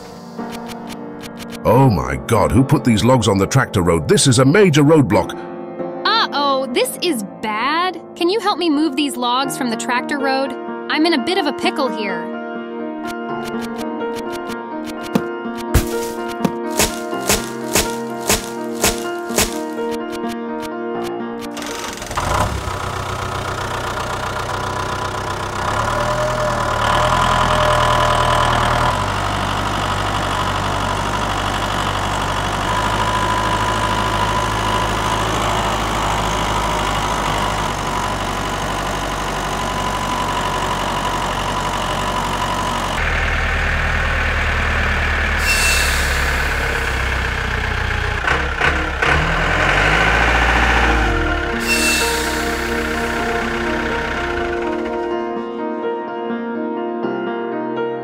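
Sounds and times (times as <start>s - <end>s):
tractor engine running: 13.4s - 20.4s, 21.4s - 55.4s.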